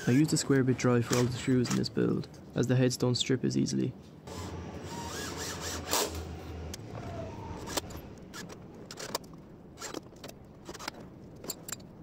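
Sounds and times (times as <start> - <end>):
cordless drill driving screw: 4.3 - 6.3.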